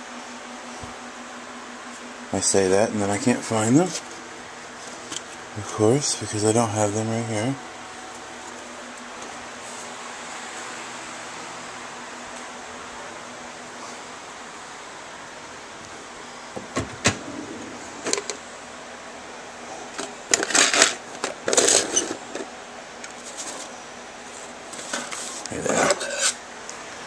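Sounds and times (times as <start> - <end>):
background hum: 0.0 - 27.0
objects rattling in a drawer: 20.3 - 22.5.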